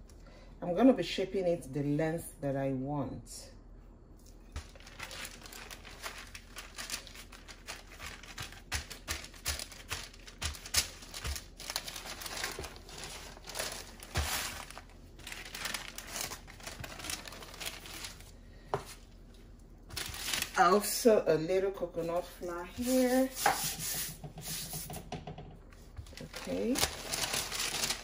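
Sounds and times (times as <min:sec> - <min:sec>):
parchment paper crinkling: 0:04.5 - 0:21.0, 0:22.1 - 0:23.7, 0:25.9 - 0:28.0.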